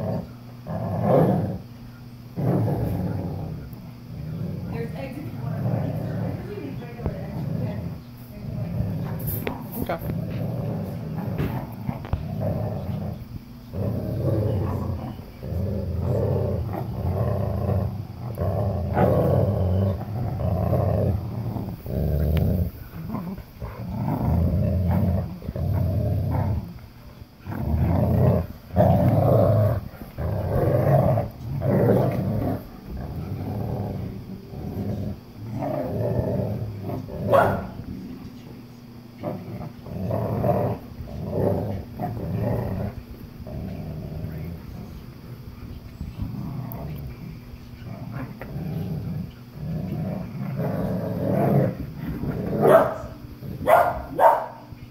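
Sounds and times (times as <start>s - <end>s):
dogs play-growling: 0.0s - 54.9s.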